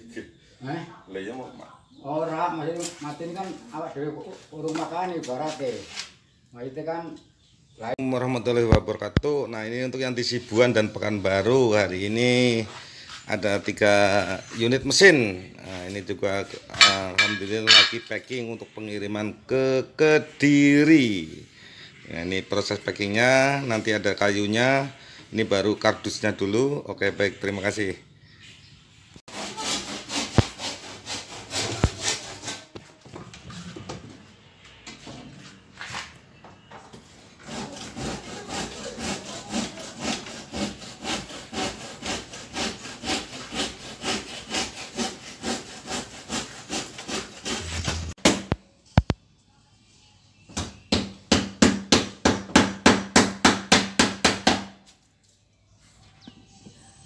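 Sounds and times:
hand saw cutting wood: 0:16.7 - 0:18.1, 0:29.3 - 0:32.8, 0:37.3 - 0:48.6, 0:52.6 - 0:54.8
sharp knocks of wood: 0:47.9 - 0:48.6, 0:50.5 - 0:54.8.

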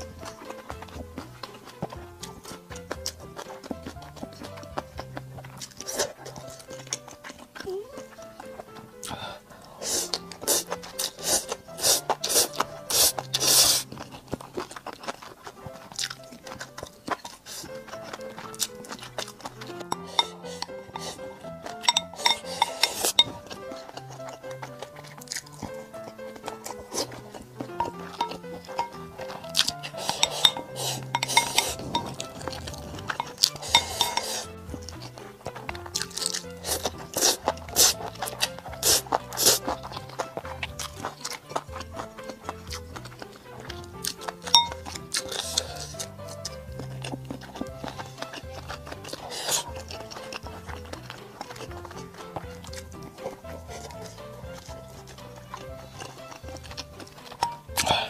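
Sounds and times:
background music: 0:00.0 - 0:58.0
chewing and slurping: 0:00.0 - 0:58.0
close eating sounds: 0:00.0 - 0:58.0
chopsticks clicking against dishes: 0:16.0 - 0:25.8, 0:26.4 - 0:58.0.

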